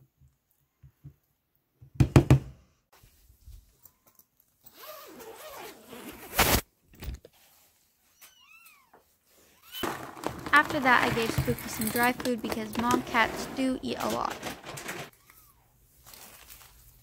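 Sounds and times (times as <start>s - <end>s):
zipper pulled open: 4.7s - 6.6s.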